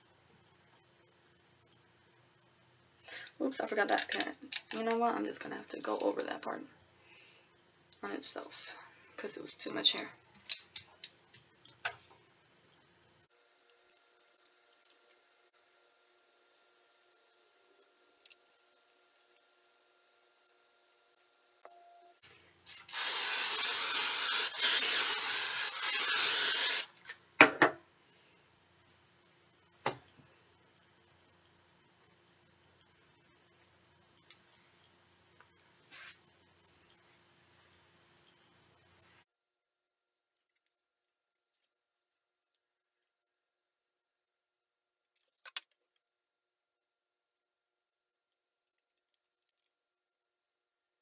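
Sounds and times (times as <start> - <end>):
aerosol can spraying: 22.7 - 26.9
soft scrapes and rustles: 35.7 - 36.3.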